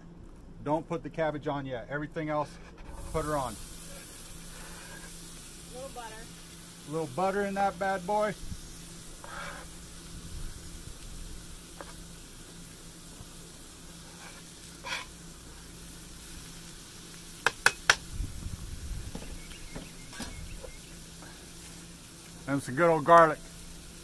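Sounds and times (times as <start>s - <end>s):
vegetables sizzling on a griddle: 2.9s - 24.0s
knife scraping a cutting board: 9.2s - 9.7s, 14.1s - 15.1s
sharp taps: 17.4s - 18.0s.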